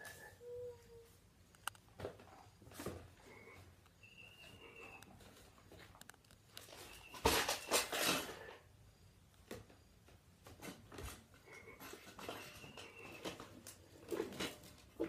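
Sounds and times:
plastic bucket clattering on tile: 7.1 - 8.5.

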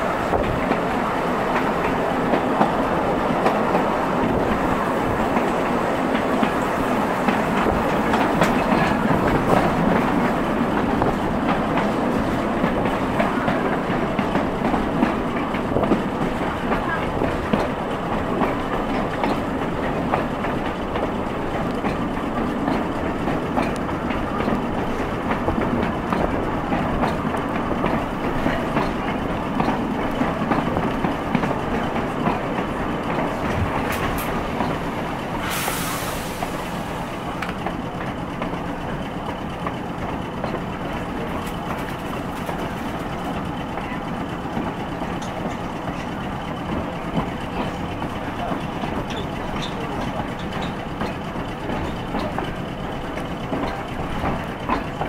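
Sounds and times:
tram wheels on rails: 0.0 - 55.0
track clicks and clatter: 0.2 - 35.3, 37.3 - 55.0
brief hiss: 35.4 - 37.0.

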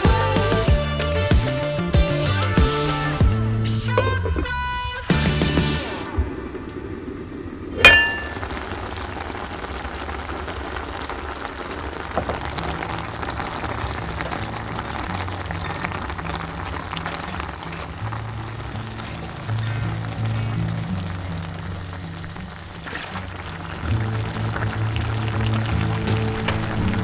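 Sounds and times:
braise bubbling in a pot: 5.9 - 27.0
heavy pot lid clanking: 7.8 - 8.6.

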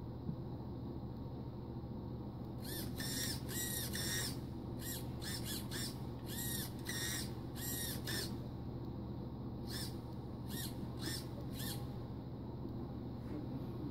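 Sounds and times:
electric motor revving whine: 2.6 - 8.4, 9.7 - 11.8.

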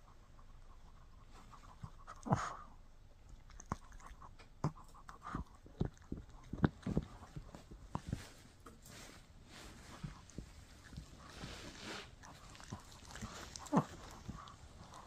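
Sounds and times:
dog gnawing on a chew: 3.2 - 8.6, 9.6 - 15.0
dog breathing: 4.6 - 15.0.

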